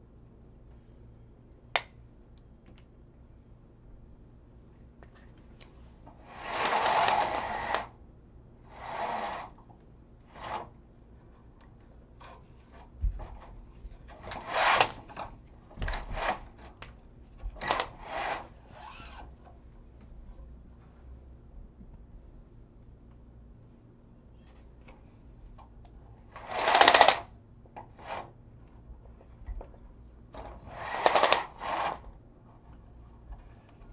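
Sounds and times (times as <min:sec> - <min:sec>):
window blinds rattling: 0:06.2 - 0:08.0, 0:08.7 - 0:09.6, 0:10.3 - 0:10.7, 0:13.2 - 0:16.8, 0:17.5 - 0:19.3, 0:26.3 - 0:27.3, 0:30.4 - 0:32.1.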